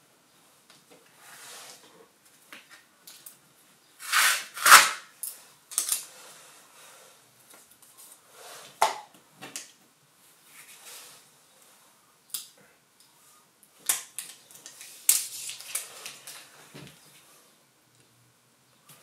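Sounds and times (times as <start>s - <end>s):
tape tearing off paper: 4.0s - 5.1s.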